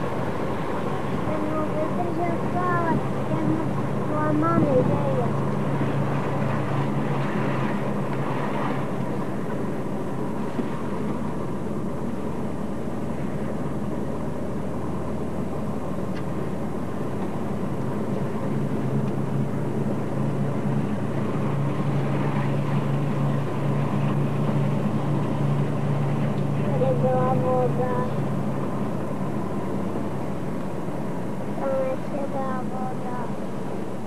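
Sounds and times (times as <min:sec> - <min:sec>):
car engine and road noise: 0:00.0 - 0:34.0.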